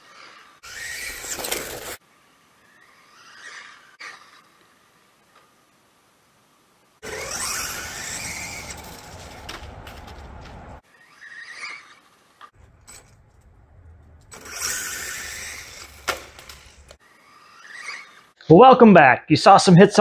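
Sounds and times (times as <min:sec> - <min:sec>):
tyre noise on concrete: 0:00.6 - 0:02.0, 0:07.0 - 0:10.8, 0:12.6 - 0:17.0
electric motor whine: 0:07.0 - 0:10.8, 0:14.1 - 0:17.8.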